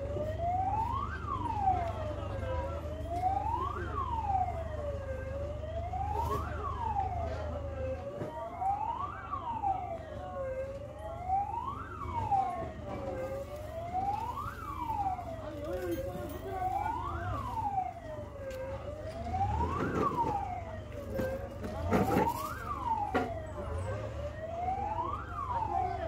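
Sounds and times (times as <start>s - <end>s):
fire engine siren wailing: 0.0s - 26.0s.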